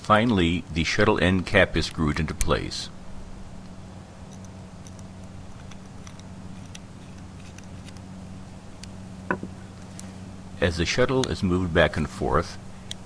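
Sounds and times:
steady low hum: 0.0 - 13.0
small metal parts clicking: 3.6 - 8.0.

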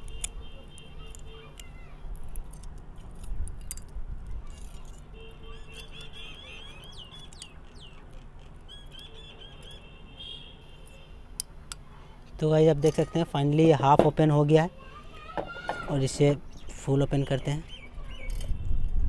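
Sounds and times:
pliers bending metal battery case: 0.0 - 9.0
bird chirping: 5.2 - 11.0, 16.2 - 19.0.

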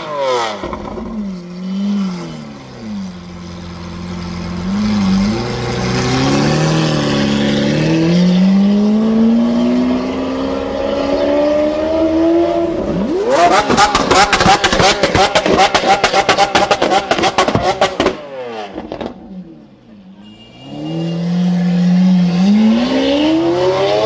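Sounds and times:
sports car engine revving: 4.3 - 19.2, 20.8 - 24.0.

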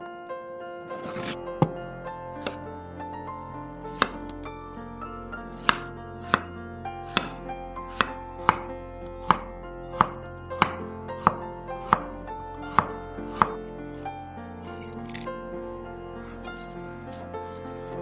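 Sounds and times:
soft background music: 0.0 - 18.0
knife chopping on wooden board: 2.4 - 2.6, 4.0 - 4.3, 5.6 - 6.5, 7.1 - 12.1, 12.7 - 13.6.

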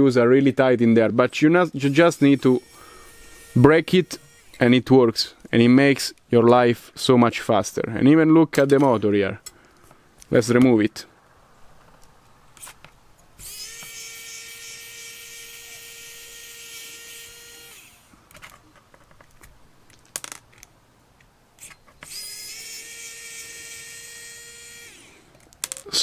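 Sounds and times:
electric screwdriver whirring: 2.2 - 4.6, 13.4 - 18.1, 21.6 - 25.2.

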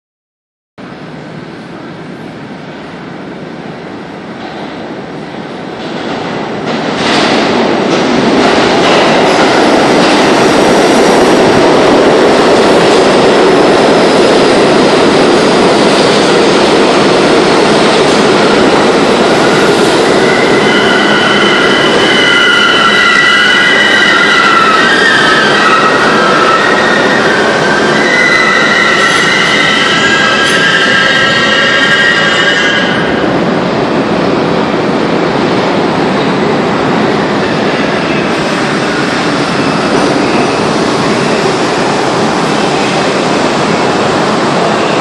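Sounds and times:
subway train rumble: 0.8 - 45.0
train wheels rushing on rails: 1.2 - 45.0
train brakes squealing: 19.4 - 33.1.

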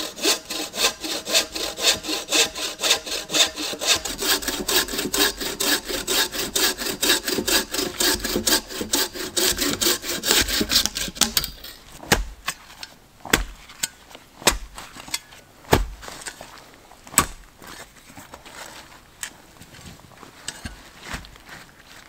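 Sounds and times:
bow saw cutting a log: 0.0 - 12.2
shovel striking earth: 10.3 - 16.4, 17.1 - 17.5.

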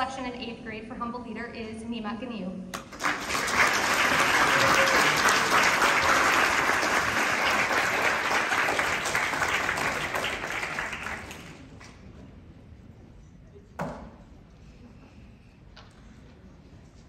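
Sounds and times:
audience applauding: 2.8 - 12.0.

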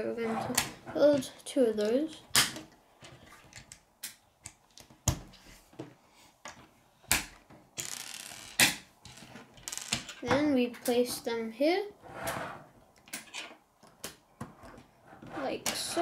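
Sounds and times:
plastic pieces snapping together: 2.3 - 2.8, 6.5 - 7.9, 8.6 - 8.9.

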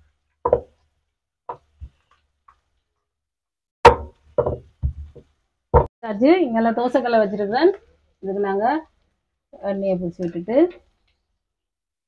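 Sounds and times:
rolling pin knocking on wooden board: 0.5 - 0.7, 3.9 - 5.9.

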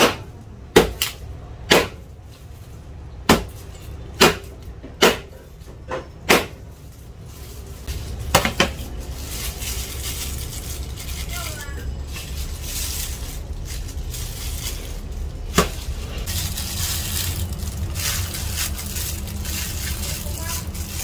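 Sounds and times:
plastic bag crinkling: 6.6 - 21.0.

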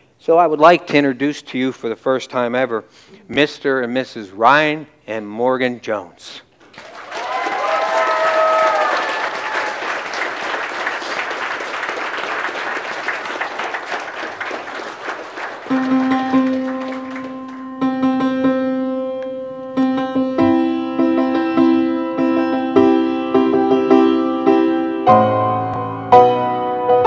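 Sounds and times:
congregation applauding: 6.6 - 17.8
person whooping: 7.1 - 10.0
keyboard chords: 15.6 - 27.0.

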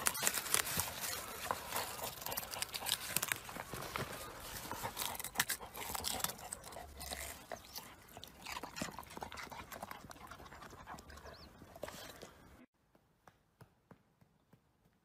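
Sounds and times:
dog crunching and snuffling: 0.0 - 12.4.

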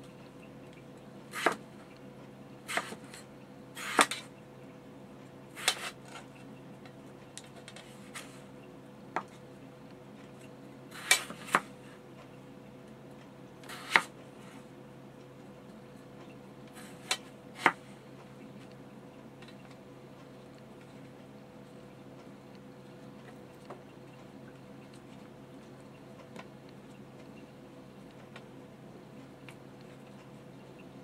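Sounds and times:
faint hum: 0.0 - 31.0
knife cutting on plastic board: 1.3 - 1.6, 2.7 - 3.2, 3.8 - 4.3, 5.6 - 6.3, 10.9 - 11.7, 13.6 - 14.2, 16.7 - 17.8.

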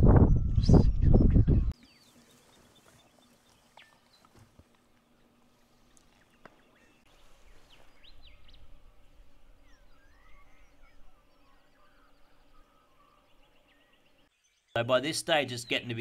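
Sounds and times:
bird chirps and calls: 9.6 - 14.8.

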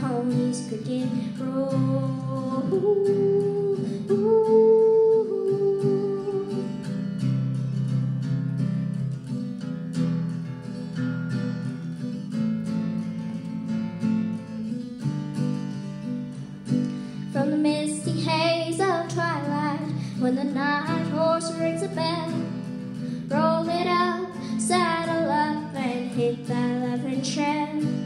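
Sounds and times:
person singing: 0.0 - 6.8, 17.3 - 28.0
acoustic guitar strumming: 0.0 - 28.0.

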